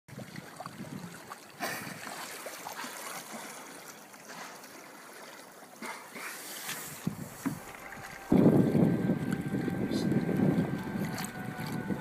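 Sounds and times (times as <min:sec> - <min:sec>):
water lapping against kayak hull: 0:00.1 - 0:12.0.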